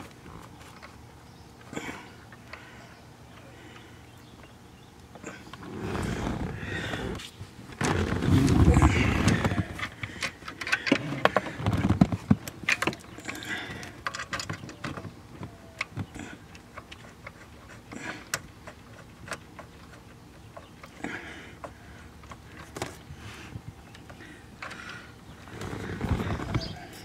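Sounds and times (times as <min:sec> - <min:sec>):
wiring rustling: 0:05.0 - 0:27.0
dull bumps: 0:07.8 - 0:10.2.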